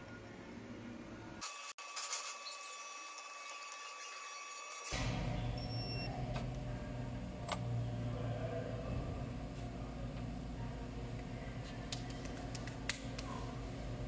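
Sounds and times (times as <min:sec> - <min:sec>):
steady low hum: 0:04.9 - 0:14.0.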